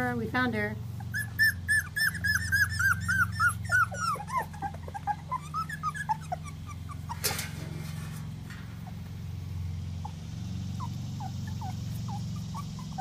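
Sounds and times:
steady low hum: 0.0s - 13.0s
puppy squeaking: 1.0s - 7.4s, 10.8s - 13.0s.

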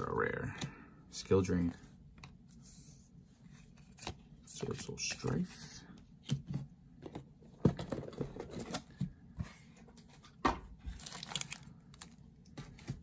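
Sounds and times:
foil wrapper crinkling: 11.0s - 12.2s.

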